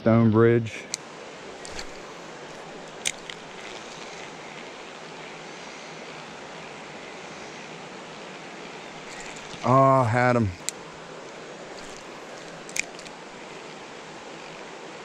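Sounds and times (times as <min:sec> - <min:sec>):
creek water rushing: 0:00.8 - 0:15.0
sharp click: 0:11.8 - 0:13.2.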